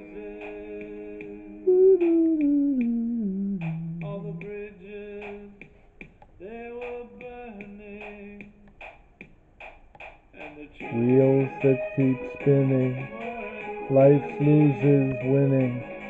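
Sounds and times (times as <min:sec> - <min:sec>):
recorded rock song: 0:10.8 - 0:16.0.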